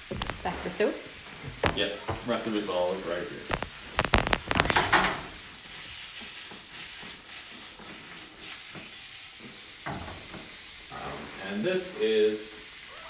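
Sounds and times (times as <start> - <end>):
bacon sizzling in a frying pan: 0.0 - 13.0
pan knocking on grate: 4.2 - 5.3.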